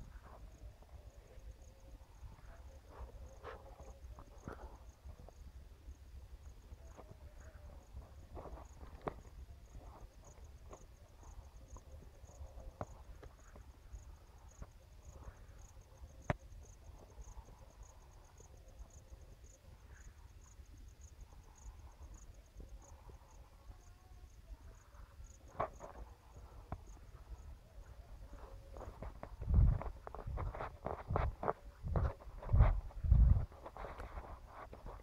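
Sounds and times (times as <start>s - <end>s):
insect chirping: 0.0s - 35.0s
wind rumble on microphone: 24.4s - 35.0s
footsteps on dry soil: 25.9s - 35.0s.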